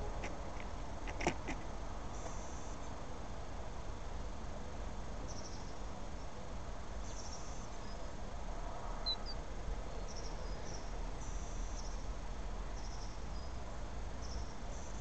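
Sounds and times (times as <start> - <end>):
small birds buzzy chirps: 5.2 - 8.3, 9.0 - 15.0.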